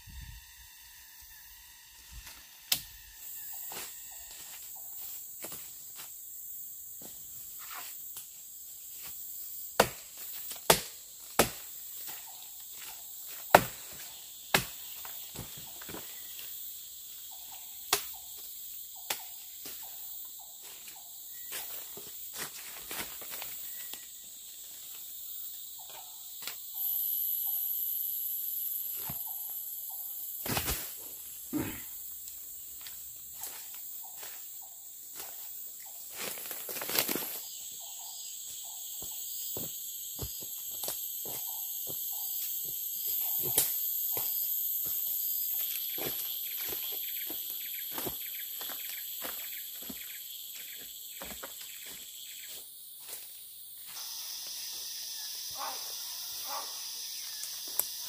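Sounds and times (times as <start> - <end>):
high buzz of forest insects: 0.0 - 58.0
machete chopping woody vine: 9.8 - 11.7, 13.5 - 15.0.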